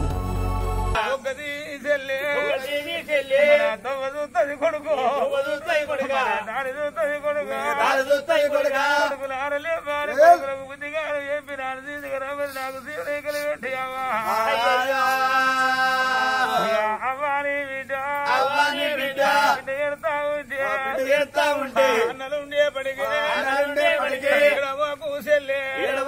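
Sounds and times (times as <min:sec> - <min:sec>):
man singing folk narrative: 0:01.0 - 0:26.0.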